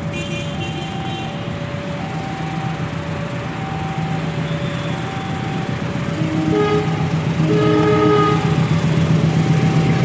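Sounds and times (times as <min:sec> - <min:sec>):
diesel locomotive engine drone: 0:00.0 - 0:10.0
locomotive horn: 0:06.1 - 0:08.8.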